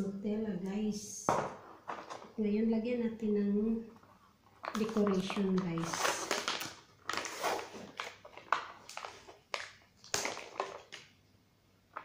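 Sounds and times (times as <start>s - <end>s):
plastic packaging crinkling: 4.0s - 11.1s.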